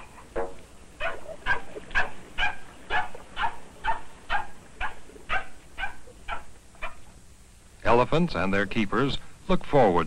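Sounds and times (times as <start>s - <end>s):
short bark-like animal calls: 1.0s - 7.0s.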